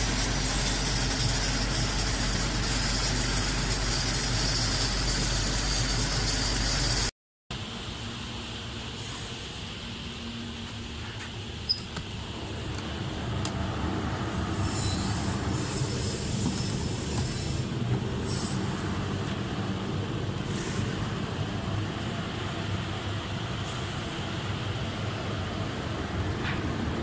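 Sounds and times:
fans and compressor humming: 0:00.0 - 0:27.0
brief high squeals: 0:14.6 - 0:16.0.

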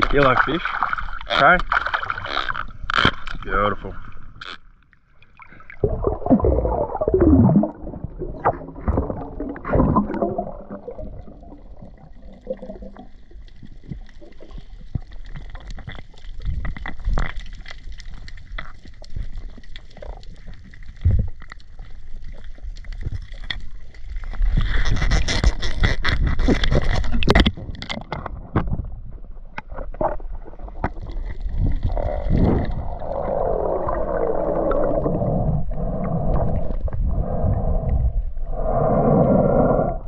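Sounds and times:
water sloshing and gurgling: 0:00.0 - 0:40.0
underwater crackle of clicks: 0:08.4 - 0:28.9.

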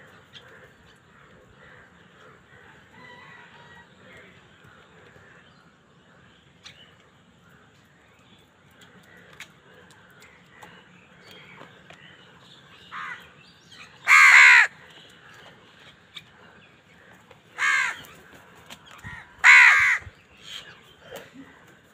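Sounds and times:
crows cawing: 0:00.0 - 0:05.5, 0:08.8 - 0:10.8, 0:12.8 - 0:15.5, 0:17.0 - 0:21.4.

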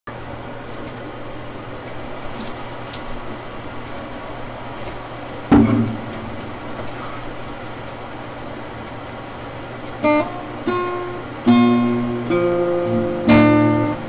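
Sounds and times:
steady background hum: 0:00.1 - 0:14.0
hollow wooden knock on guitar: 0:05.5 - 0:06.9.

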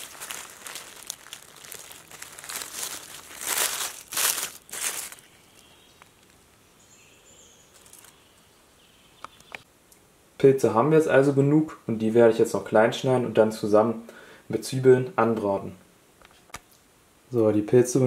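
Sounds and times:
dry leaves rustling and crackling: 0:00.0 - 0:06.5, 0:07.7 - 0:08.2.

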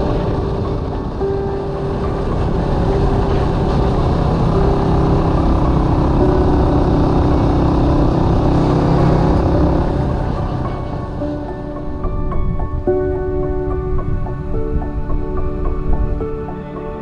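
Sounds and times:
motorcycle engine running: 0:00.0 - 0:12.3
road and wind noise: 0:00.0 - 0:17.0.

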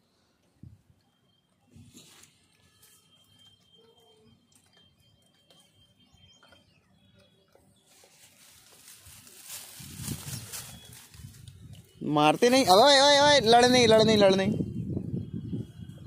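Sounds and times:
faint bird chirps: 0:00.0 - 0:09.4, 0:10.2 - 0:12.1
thin steady high tone: 0:00.0 - 0:14.3
soft rustling: 0:07.9 - 0:11.6.

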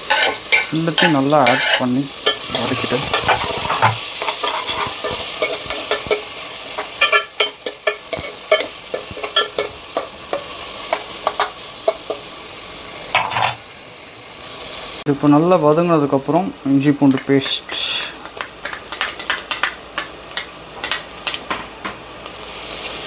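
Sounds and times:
spatula scraping and tapping pan: 0:00.0 - 0:12.3, 0:17.1 - 0:22.0
onions sizzling in hot oil: 0:00.0 - 0:23.0.

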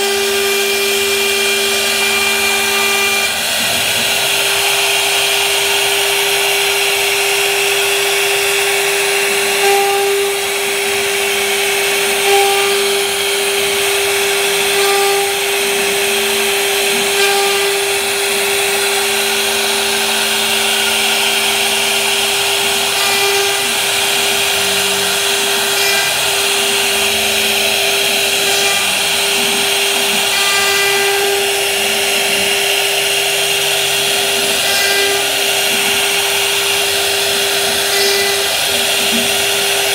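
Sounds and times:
router spindle high whine: 0:00.0 - 0:39.9
bit cutting wood hiss: 0:19.6 - 0:39.8.

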